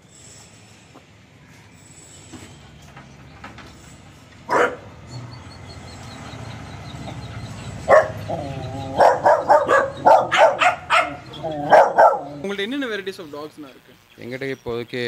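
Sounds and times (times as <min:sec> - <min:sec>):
dogs barking and yipping: 0:04.4 - 0:12.5.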